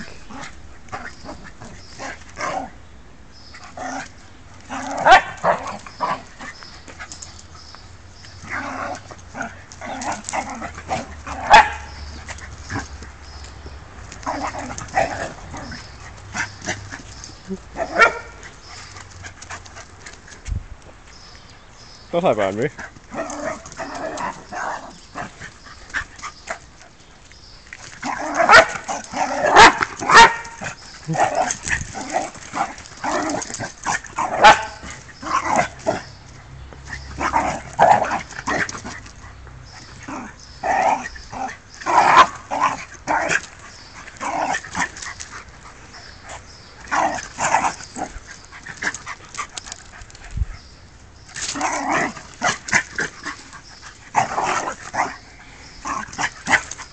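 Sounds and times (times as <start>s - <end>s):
puppies barking: 4.7s - 7.1s, 8.4s - 13.3s, 14.0s - 19.6s, 28.0s - 36.2s.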